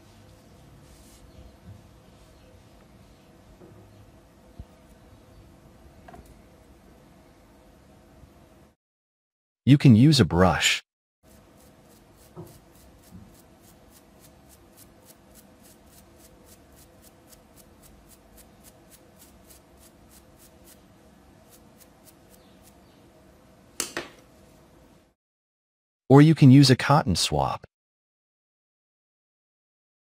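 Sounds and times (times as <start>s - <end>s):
brush scrubbing circuit board: 11.3s - 20.8s.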